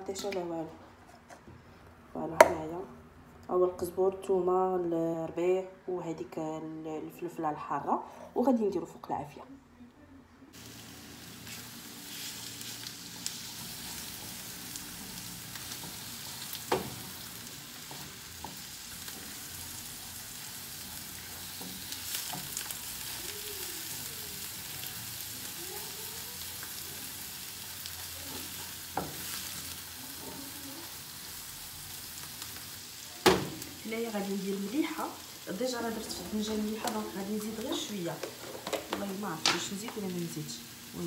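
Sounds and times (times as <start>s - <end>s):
vegetables sizzling in oil: 10.6s - 41.0s
spatula stirring in pan: 11.1s - 33.0s.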